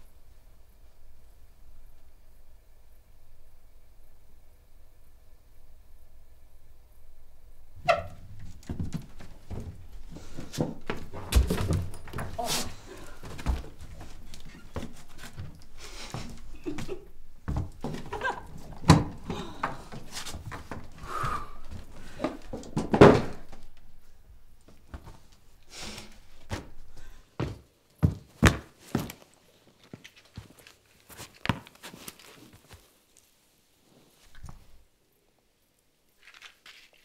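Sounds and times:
soft knocks and thuds: 0:07.9 - 0:12.5.

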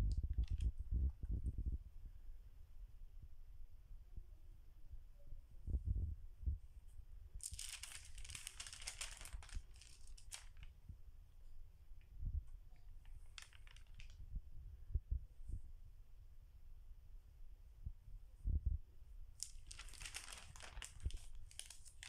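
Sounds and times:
pages rustling: 0:00.3 - 0:00.7, 0:07.4 - 0:10.7, 0:13.0 - 0:14.2, 0:19.4 - 0:22.0.

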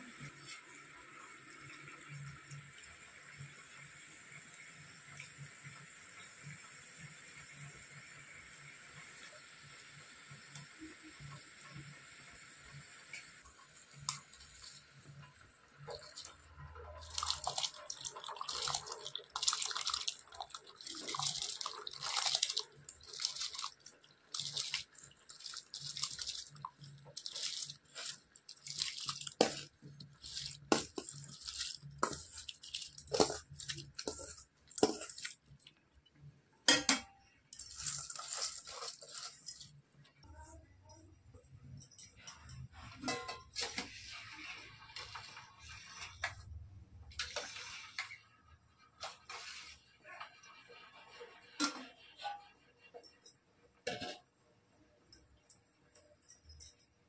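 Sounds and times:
hiss of boiling water: 0:00.0 - 0:35.6, 0:47.2 - 0:48.4, 0:49.0 - 0:52.2
rice pouring into boiling water: 0:00.1 - 0:35.7, 0:37.6 - 0:39.8.

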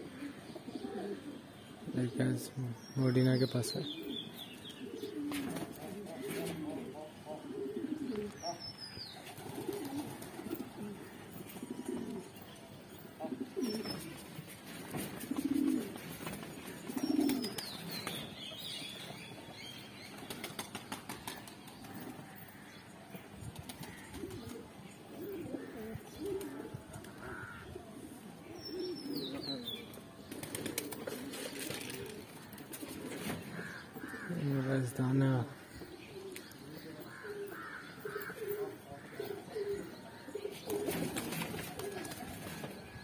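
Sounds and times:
pigeons cooing: 0:00.0 - 0:02.6, 0:03.8 - 0:08.6, 0:09.2 - 0:19.3, 0:23.6 - 0:43.0
high falling bird calls: 0:02.5 - 0:14.7, 0:15.3 - 0:43.0
wings flapping: 0:09.2 - 0:10.7, 0:20.1 - 0:22.0, 0:23.5 - 0:24.6, 0:30.3 - 0:33.4, 0:40.7 - 0:42.8.

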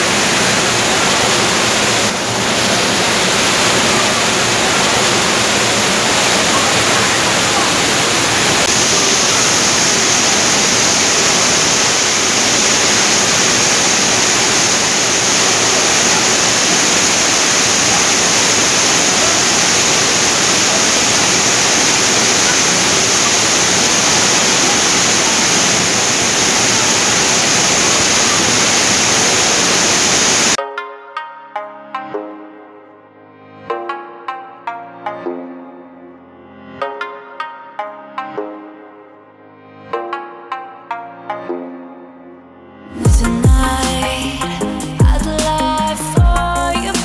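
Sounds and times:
waterfall rushing: 0:00.0 - 0:30.6.

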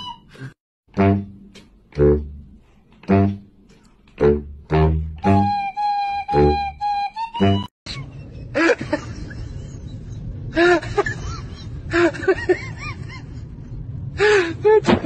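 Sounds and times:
music: 0:01.0 - 0:03.5, 0:04.2 - 0:07.7
low rumble: 0:08.1 - 0:14.8.

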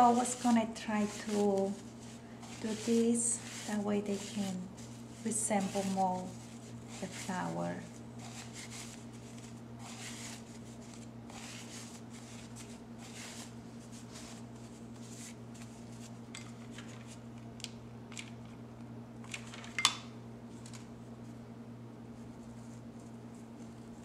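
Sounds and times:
fabric petals rustling: 0:00.0 - 0:16.2
steady low hum: 0:00.0 - 0:19.4.

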